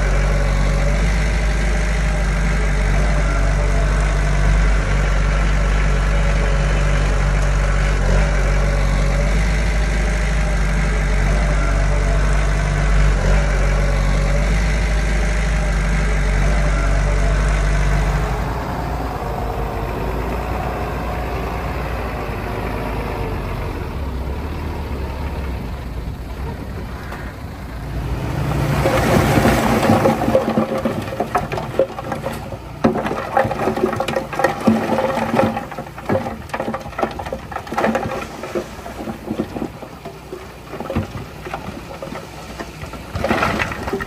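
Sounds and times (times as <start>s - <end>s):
diesel engine deep rumble: 0.0s - 44.0s.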